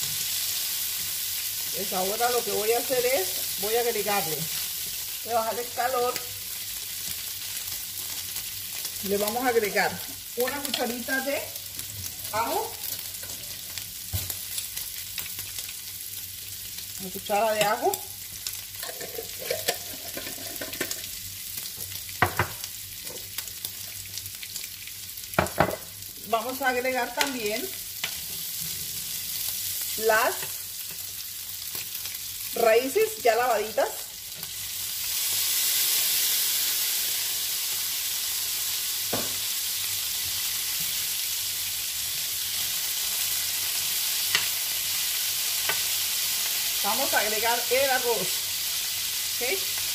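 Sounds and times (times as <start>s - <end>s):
meat sizzling in a frying pan: 0.0s - 49.9s.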